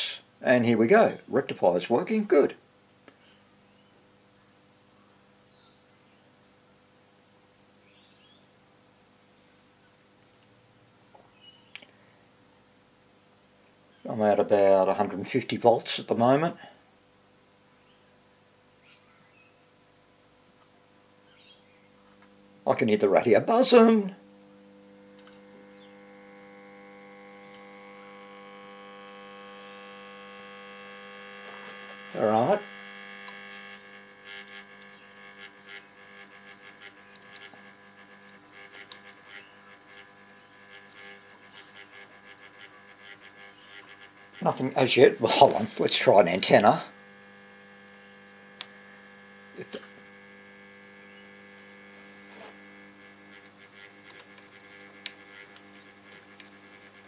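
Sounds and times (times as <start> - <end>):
radio speaker mains hum: 0.0 - 57.0
sharp clicks of antenna lead: 25.1 - 26.4, 28.8 - 44.1, 47.9 - 48.9, 52.5 - 57.0.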